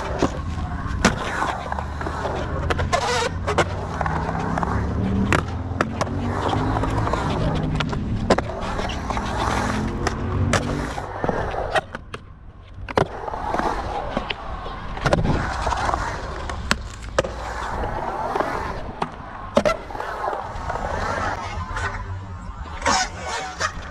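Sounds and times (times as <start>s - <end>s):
skateboard clacks and knocks: 0.0s - 17.4s
skateboard wheels rolling on concrete: 0.0s - 23.9s.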